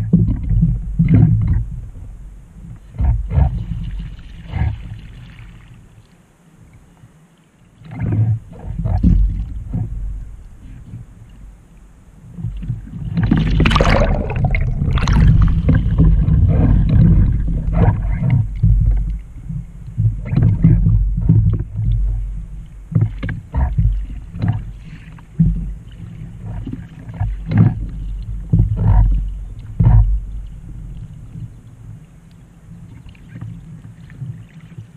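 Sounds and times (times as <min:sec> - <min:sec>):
wind on microphone: 0:00.0 - 0:05.6, 0:07.8 - 0:32.1
water splashing against kayak: 0:00.0 - 0:34.9
paddle blades dipping into water: 0:07.8 - 0:34.9.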